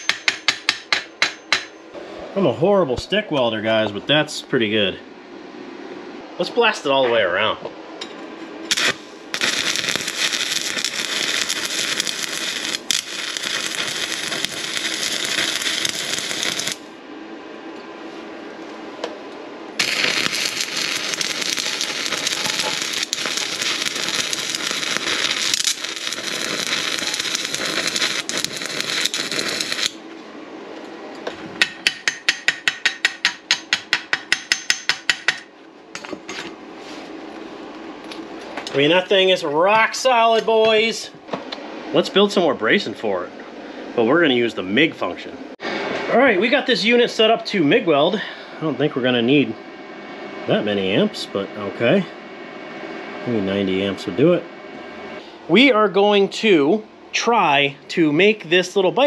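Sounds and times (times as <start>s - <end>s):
welding arc crackling: 8.7s - 17.0s, 19.8s - 30.0s.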